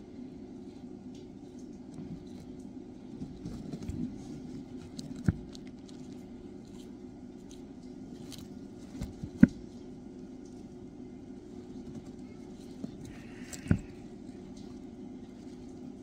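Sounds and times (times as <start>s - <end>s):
tortoises biting and tearing flower: 11.7s - 16.0s.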